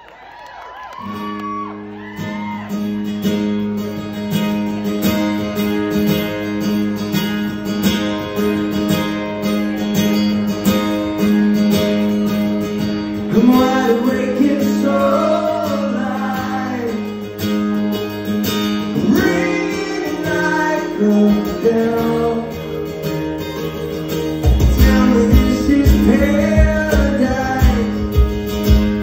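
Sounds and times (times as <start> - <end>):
acoustic guitar strumming: 1.1 - 29.0
man singing: 13.3 - 17.3, 19.0 - 22.8, 24.6 - 28.4.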